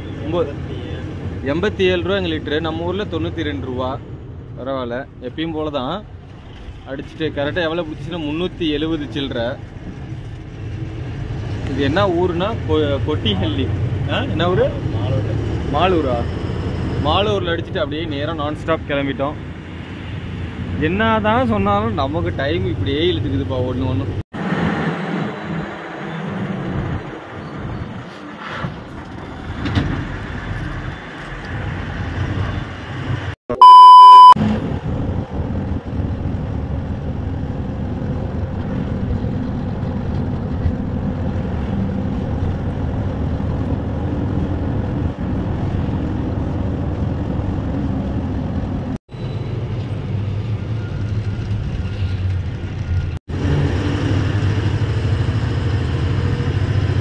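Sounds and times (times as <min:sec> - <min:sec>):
road noise: 0:00.0 - 0:57.0
loud electronic beep: 0:33.5 - 0:34.4.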